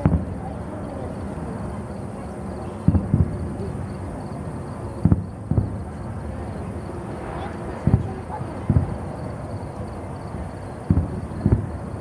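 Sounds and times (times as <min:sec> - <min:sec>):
distant firework booms: 0:00.0 - 0:00.5, 0:02.8 - 0:03.7, 0:05.0 - 0:06.3, 0:07.8 - 0:09.6, 0:10.8 - 0:12.0.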